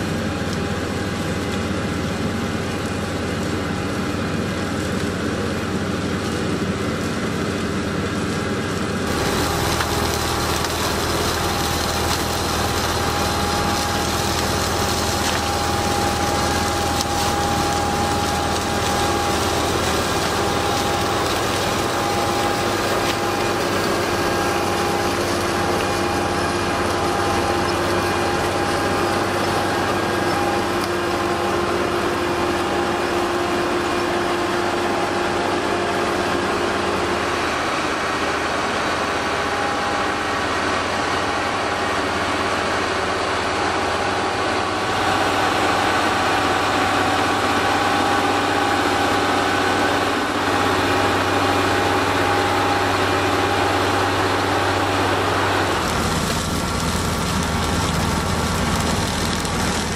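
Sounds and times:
diesel engine running under load: 0.0 - 59.9
conveyors clattering and hissing: 9.0 - 30.8.

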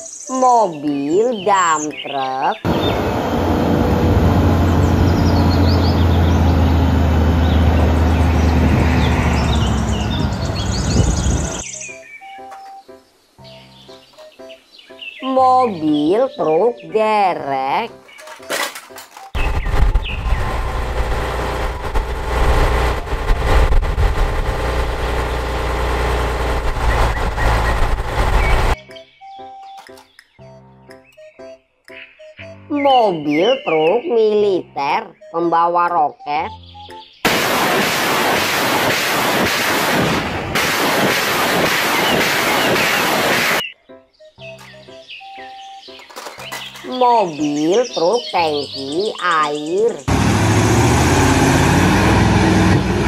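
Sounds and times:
birds chirping: 0.0 - 3.7, 4.3 - 18.5, 19.2 - 20.6, 26.7 - 37.3, 41.8 - 50.2
diesel truck engine humming: 2.7 - 11.6, 19.4 - 28.8, 50.0 - 53.0.

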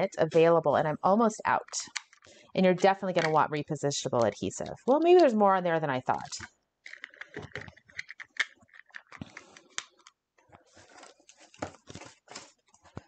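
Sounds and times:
clicks and taps of handled supplies: 1.7 - 3.4, 6.1 - 10.2.

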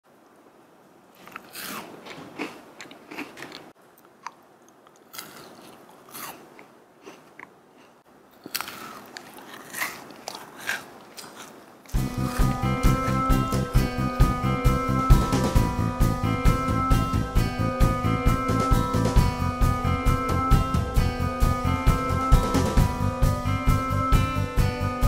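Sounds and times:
crunching and chewing pastry: 1.1 - 13.2.

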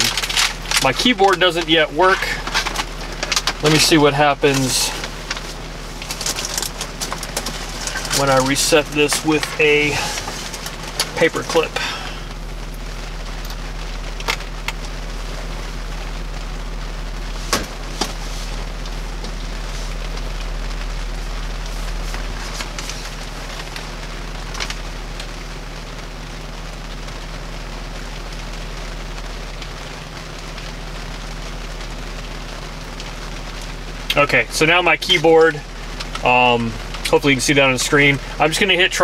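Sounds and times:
rain on car roof: 0.0 - 39.0
steady low hum: 0.0 - 39.0.

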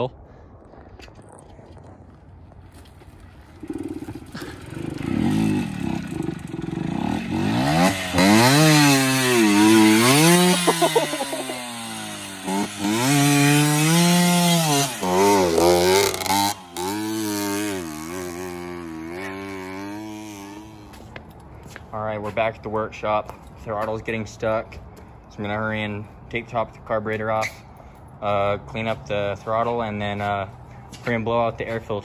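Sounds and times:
dirt bike engine revving: 3.5 - 21.1.

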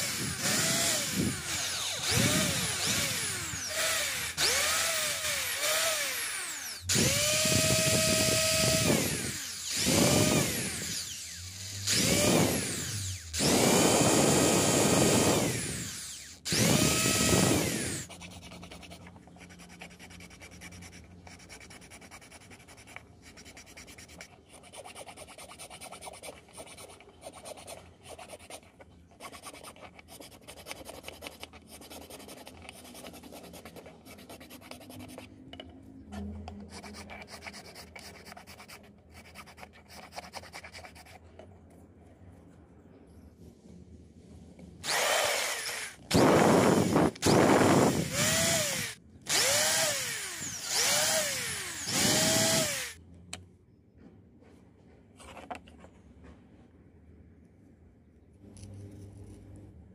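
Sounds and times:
needle file rasping on plastic: 0.0 - 13.2, 13.8 - 35.4, 36.2 - 41.4
cordless drill whining: 0.0 - 18.1, 44.8 - 53.0.

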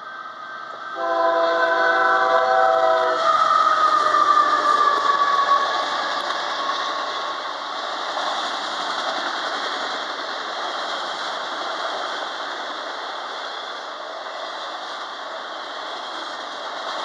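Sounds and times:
train wheels rolling on rail: 0.0 - 17.0
locomotive horn: 1.0 - 5.9.

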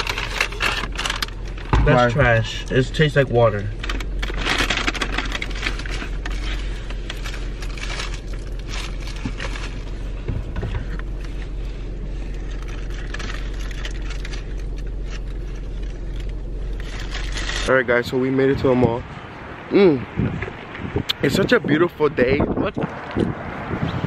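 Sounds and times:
paper wrappers crinkling: 0.0 - 2.1, 3.8 - 10.1, 12.2 - 17.7
low hum inside car: 0.0 - 24.0.

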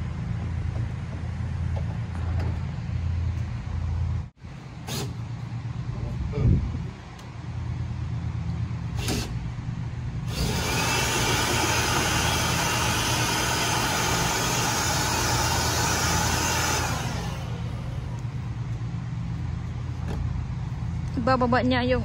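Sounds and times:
steady low hum: 0.0 - 22.0
cordless drill running: 10.3 - 18.5.

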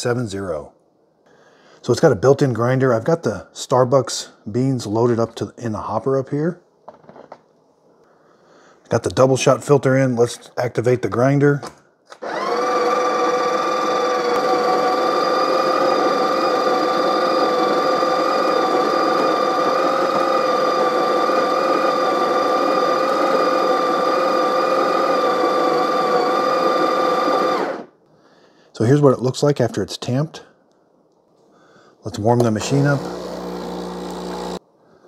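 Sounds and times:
coffee grinder grinding beans: 12.2 - 27.9, 32.4 - 34.6.

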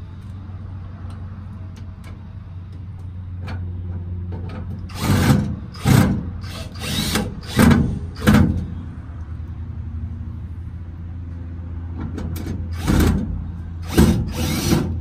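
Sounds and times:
cordless drill driving screws: 4.9 - 8.4, 13.8 - 15.0.

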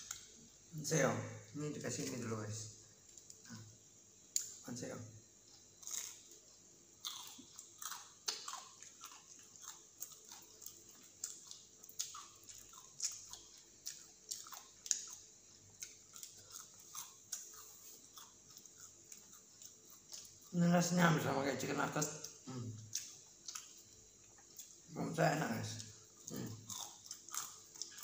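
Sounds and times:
person chewing crunchy food: 5.4 - 20.6, 22.0 - 24.9, 25.7 - 28.0.

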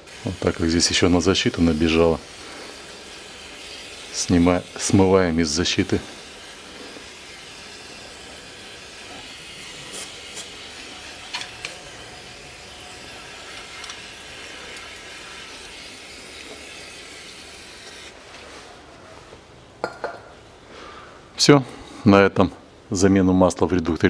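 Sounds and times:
aerosol can spraying hiss: 0.0 - 18.3.

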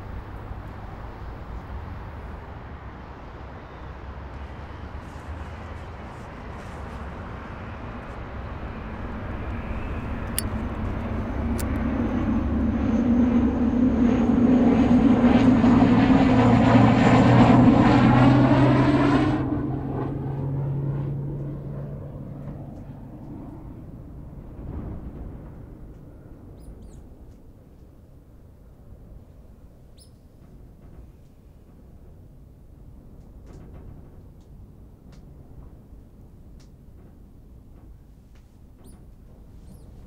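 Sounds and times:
low droning hum with whine: 0.0 - 40.0.

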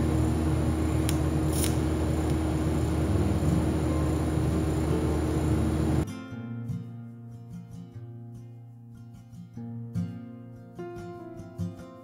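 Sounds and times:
welding arc hum and hiss: 0.0 - 6.0
welding arc crackles: 0.9 - 2.6.

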